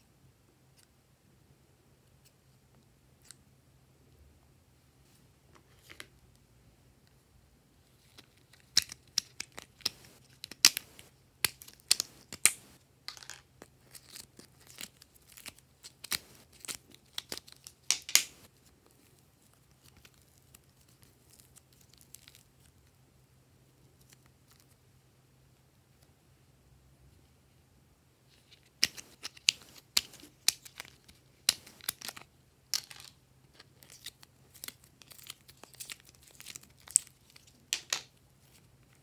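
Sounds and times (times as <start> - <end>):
clay crackling and tearing: 8.0 - 12.8, 13.6 - 22.8, 28.4 - 39.0.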